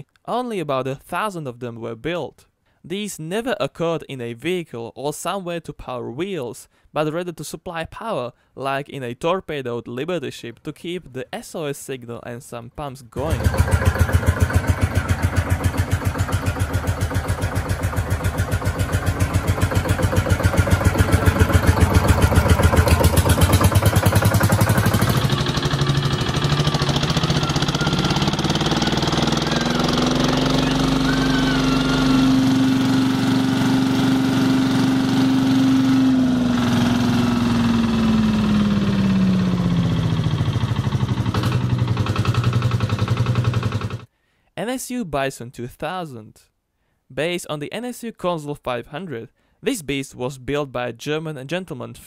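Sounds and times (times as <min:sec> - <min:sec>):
diesel engine running: 0:13.2 - 0:44.1.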